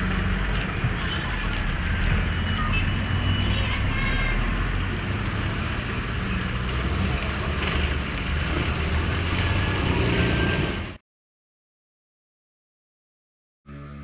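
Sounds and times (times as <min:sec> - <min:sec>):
car approaching: 0:00.0 - 0:11.0.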